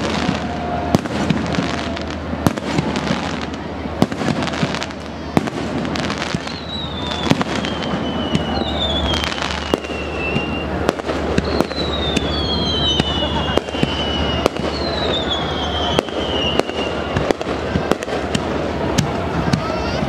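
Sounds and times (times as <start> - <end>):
firework bangs: 0.0 - 20.0
firework crackling: 0.0 - 20.0
falling firework whistles: 4.1 - 19.7.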